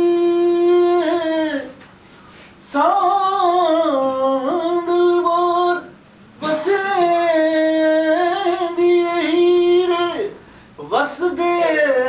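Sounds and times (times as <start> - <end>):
breath: 2.0 - 2.6, 10.4 - 10.8.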